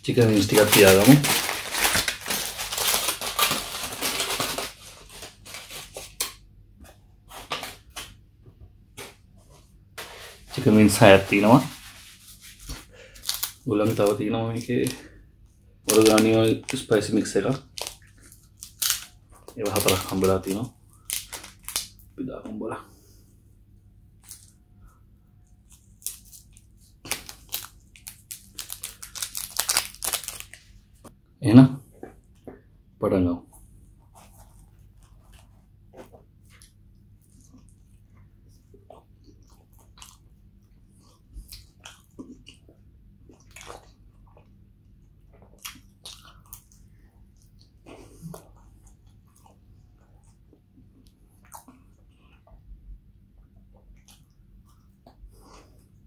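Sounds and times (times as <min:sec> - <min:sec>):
aluminium foil crinkling: 0:00.1 - 0:06.2, 0:10.6 - 0:15.2, 0:15.9 - 0:22.0, 0:25.6 - 0:30.7.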